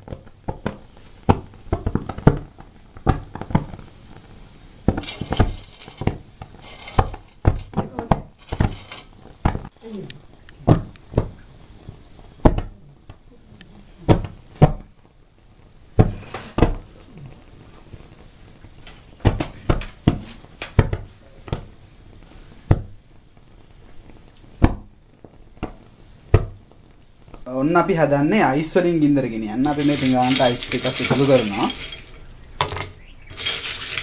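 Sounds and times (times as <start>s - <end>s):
gas igniting in sharp pops: 0.0s - 13.3s, 14.0s - 27.5s.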